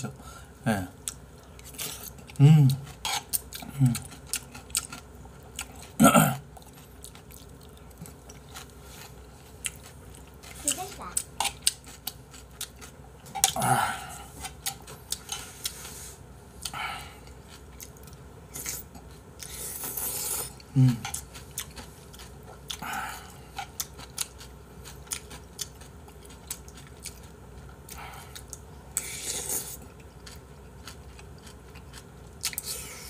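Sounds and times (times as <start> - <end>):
noodles slurped and chewed: 17.2 - 27.3.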